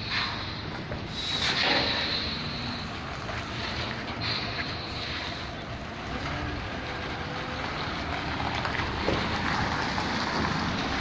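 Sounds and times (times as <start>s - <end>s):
diesel truck engine rumble: 0.0s - 11.0s.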